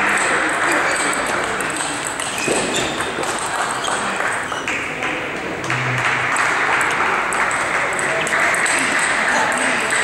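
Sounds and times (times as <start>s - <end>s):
table tennis ball clicks: 0.1s - 4.8s.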